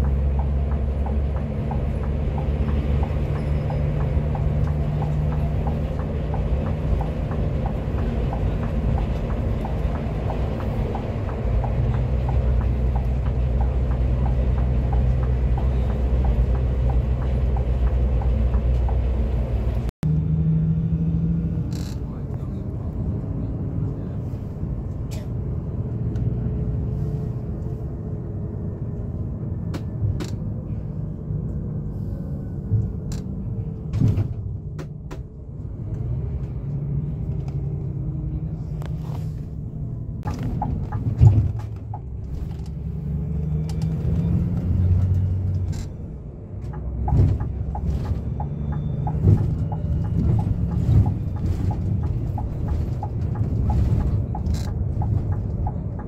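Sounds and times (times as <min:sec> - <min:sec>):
coach engine and road rumble: 0:00.0 - 0:56.0.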